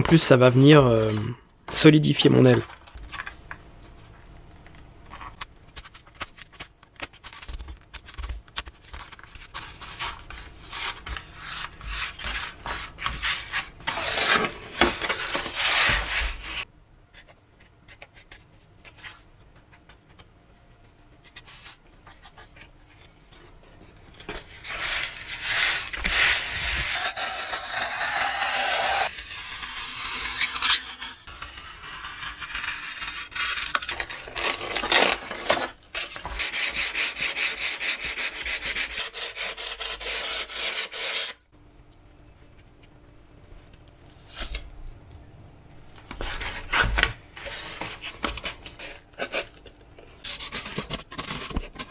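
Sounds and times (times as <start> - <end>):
foam sheets rubbing and scraping: 8.8 - 16.7, 24.4 - 41.4.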